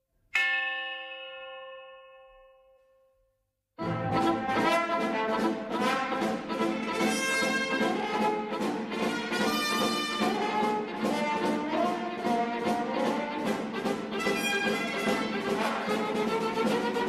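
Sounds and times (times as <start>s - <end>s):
orchestral chase music with brass: 3.8s - 17.0s.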